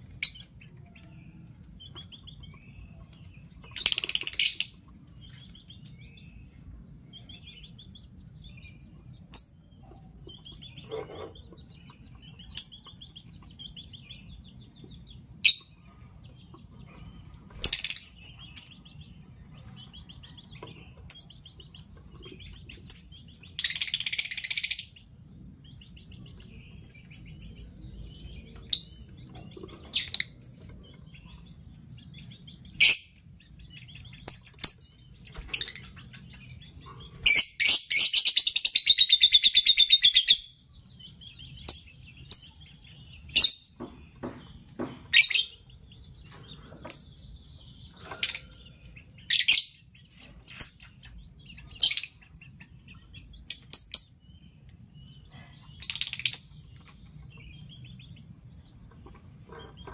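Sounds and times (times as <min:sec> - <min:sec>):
lovebirds chirping: 0:00.0 - 0:59.9
harsh rapid bird chattering: 0:03.6 - 0:04.8.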